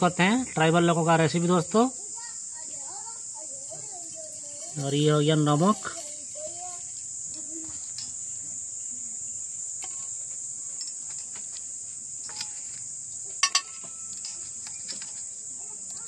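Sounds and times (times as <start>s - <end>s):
high-pitched insect chorus: 0.0s - 16.0s
sharp clinks on ringing plate: 13.4s - 15.2s.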